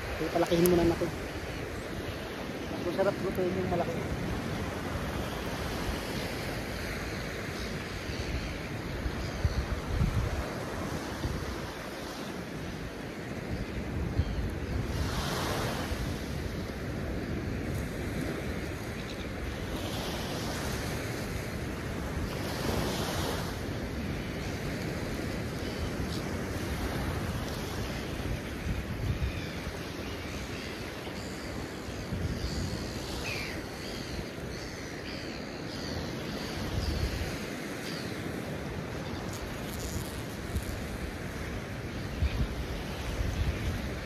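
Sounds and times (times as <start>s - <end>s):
wind buffeting microphone: 7.8s - 11.8s.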